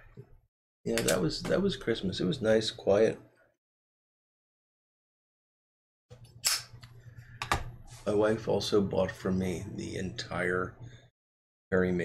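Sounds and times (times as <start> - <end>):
person speaking: 0.9 - 3.2.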